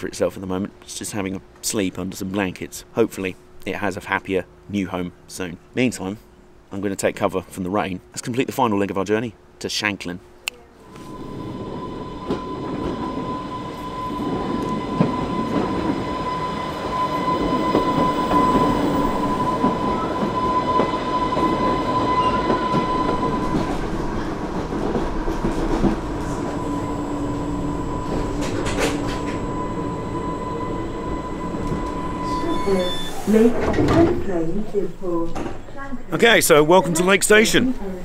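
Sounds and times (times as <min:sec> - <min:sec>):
electric train whine: 0:10.8 - 0:35.0
low hum: 0:10.8 - 0:35.2
train wheels rumbling on rail: 0:10.9 - 0:33.7.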